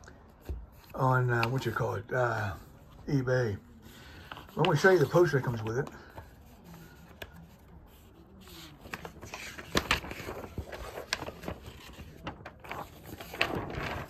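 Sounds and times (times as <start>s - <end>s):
paper rustling: 0.3s - 14.0s.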